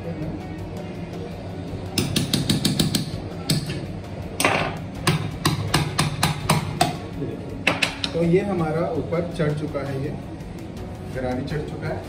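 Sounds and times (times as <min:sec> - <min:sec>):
small hammer tapping on metal: 0:02.0 - 0:03.8.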